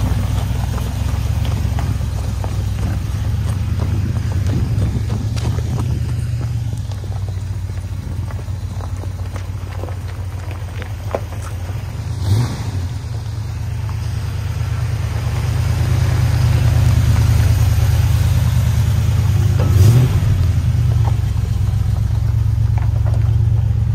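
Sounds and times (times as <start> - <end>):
truck engine rumbling: 0.0 - 23.9
tyres on gravel: 0.0 - 23.9.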